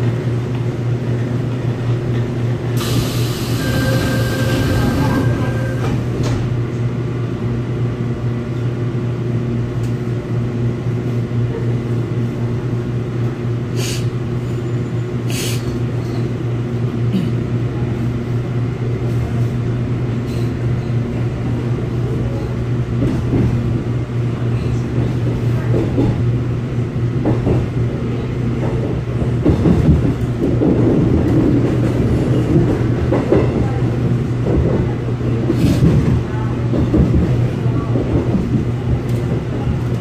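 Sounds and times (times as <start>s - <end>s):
train car equipment humming: 0.0s - 40.0s
train pulling away: 2.8s - 6.5s.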